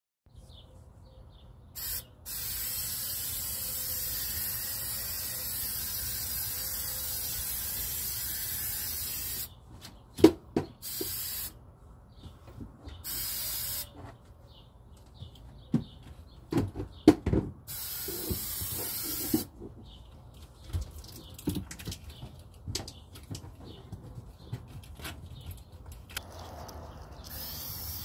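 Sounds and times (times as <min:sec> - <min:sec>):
aerosol spray can hissing: 0:01.8 - 0:09.5, 0:10.8 - 0:11.5, 0:13.1 - 0:13.9, 0:17.7 - 0:19.5, 0:27.3 - 0:28.0.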